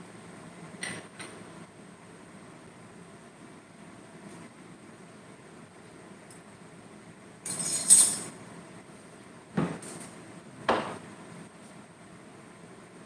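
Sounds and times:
kitchenware clattering: 7.5 - 8.3.

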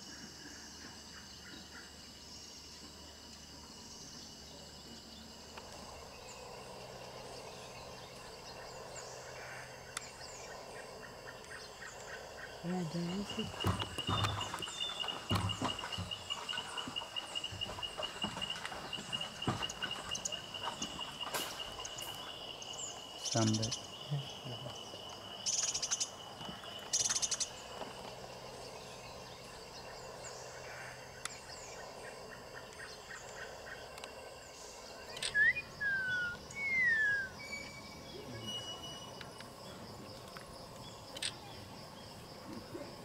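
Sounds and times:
high-pitched insect drone: 11.7 - 32.2, 34.5 - 42.3
bird whistles sliding in pitch: 35.3 - 37.6.

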